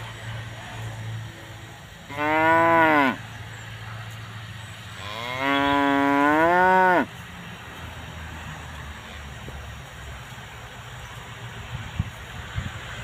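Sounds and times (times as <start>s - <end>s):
cattle mooing: 2.1s - 3.2s, 5.0s - 7.1s.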